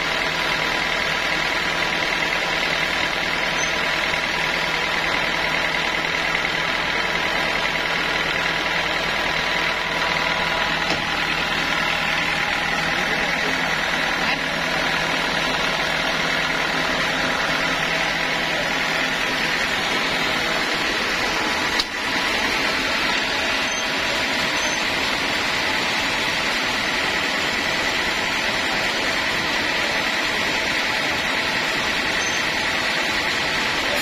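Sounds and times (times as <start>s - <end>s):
sawmill machinery running: 0.0s - 34.0s.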